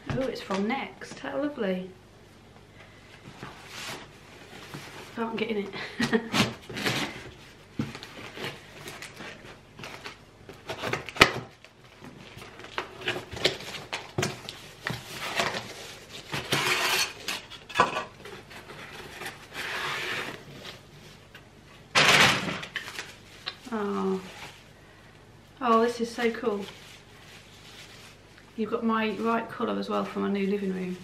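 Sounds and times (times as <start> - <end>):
paper rustling and crinkling: 3.2 - 5.5, 6.1 - 17.6, 22.6 - 24.7, 25.8 - 28.4
bubble wrap rustling: 3.2 - 17.6, 22.6 - 24.7, 25.6 - 31.0.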